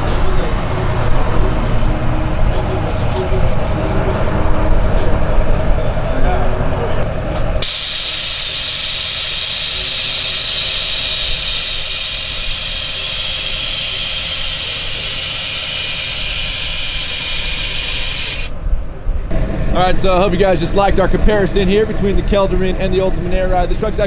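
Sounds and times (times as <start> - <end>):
air suspension hissing: 7.6 - 18.6.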